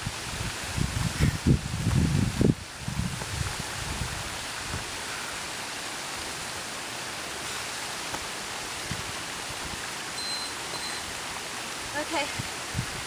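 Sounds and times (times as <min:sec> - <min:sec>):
waterfall rushing: 0:00.0 - 0:13.0
timer beeps: 0:10.2 - 0:11.0.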